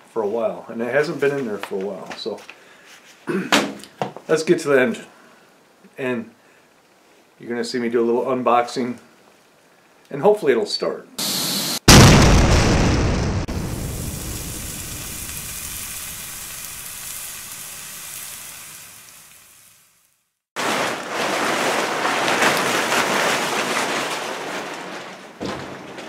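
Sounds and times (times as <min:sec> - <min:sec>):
rumbling explosion: 0:11.8 - 0:17.2.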